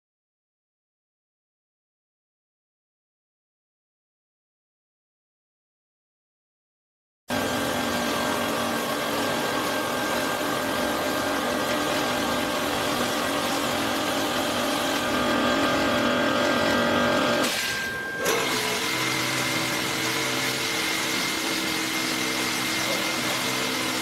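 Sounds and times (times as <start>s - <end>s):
pump humming: 7.3s - 24.0s.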